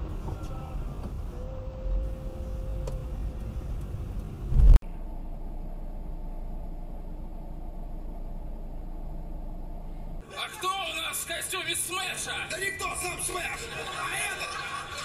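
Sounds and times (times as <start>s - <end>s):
car interior road rumble: 0.0s - 13.6s
loud deep thump: 4.5s - 4.8s.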